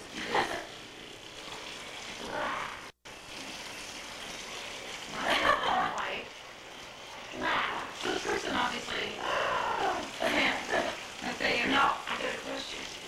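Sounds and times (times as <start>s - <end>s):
camcorder hiss: 0.0s - 13.0s
indistinct voices: 7.3s - 13.0s.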